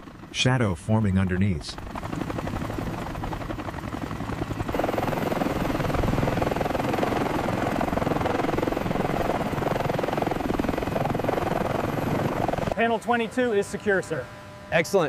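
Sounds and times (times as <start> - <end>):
helicopter rotor chopping: 0.0 - 15.0.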